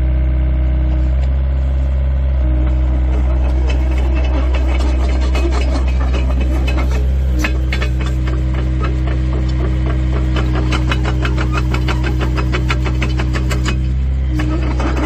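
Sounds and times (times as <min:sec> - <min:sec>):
diesel engine running: 0:00.0 - 0:15.0
steady whine: 0:01.7 - 0:15.0
track links clattering: 0:03.1 - 0:13.9.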